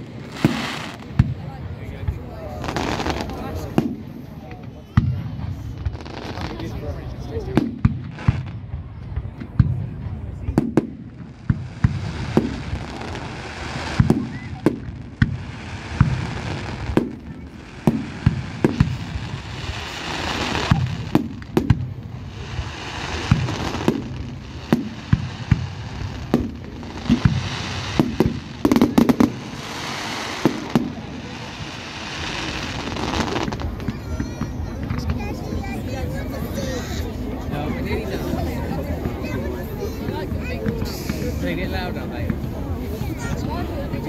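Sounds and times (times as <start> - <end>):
hissing crackle: 11.0 - 33.9.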